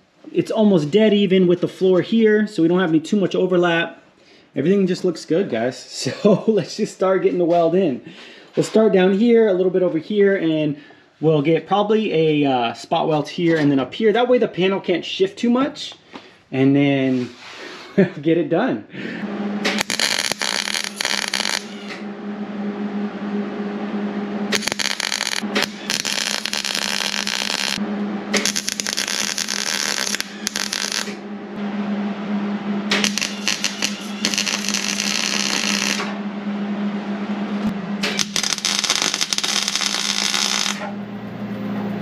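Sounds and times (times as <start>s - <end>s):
steady low hum: 18.8s - 42.0s
welder crackling: 19.6s - 22.0s, 24.5s - 31.2s, 32.9s - 36.2s, 38.0s - 40.9s.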